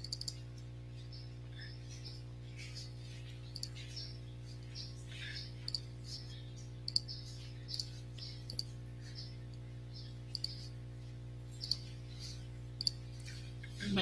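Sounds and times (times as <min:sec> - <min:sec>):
sharp clicks: 0:00.0 - 0:00.4, 0:06.9 - 0:08.7, 0:10.3 - 0:10.7, 0:12.8 - 0:13.0
low steady hum: 0:00.0 - 0:14.0.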